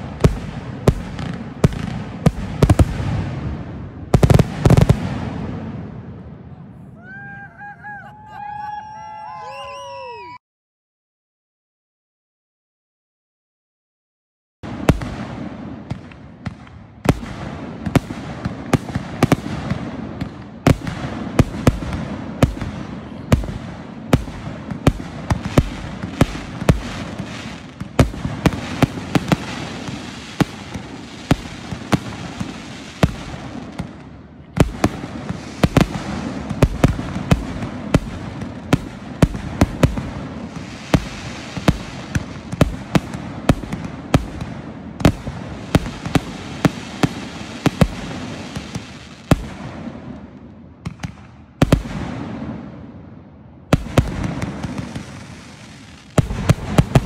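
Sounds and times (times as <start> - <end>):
fireworks bangs: 0.0 - 10.3, 14.6 - 53.1, 53.7 - 57.0
fireworks rushing crackle: 20.7 - 34.0, 34.6 - 44.4, 45.0 - 49.7, 53.8 - 57.0.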